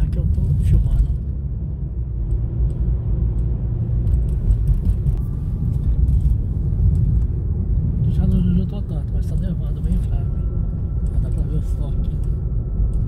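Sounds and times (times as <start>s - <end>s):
car rumble from inside cabin: 0.0s - 13.0s.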